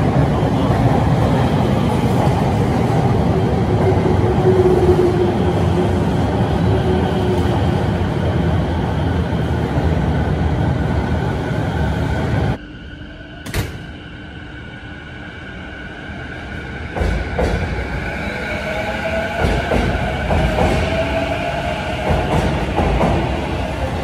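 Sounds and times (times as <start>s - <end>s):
train wheel and motor noise: 0.0s - 24.0s.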